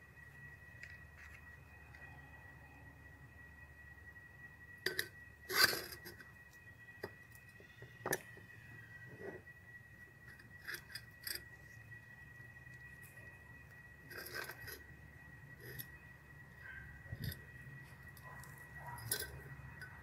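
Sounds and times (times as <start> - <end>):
trowel scraping soil into jar: 4.9 - 6.1, 14.0 - 14.9.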